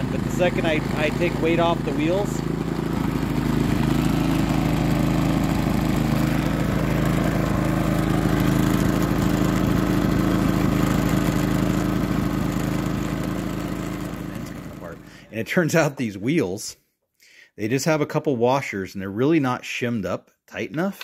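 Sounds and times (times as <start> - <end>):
generator running: 0.0 - 15.4.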